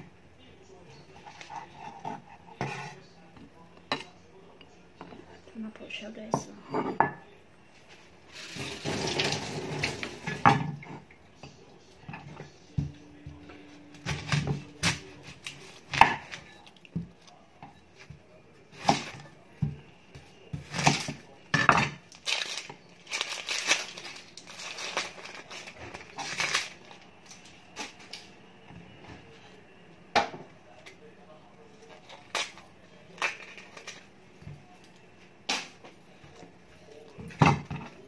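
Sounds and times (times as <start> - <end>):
onion skin crackling: 22.0 - 28.3, 31.8 - 34.1.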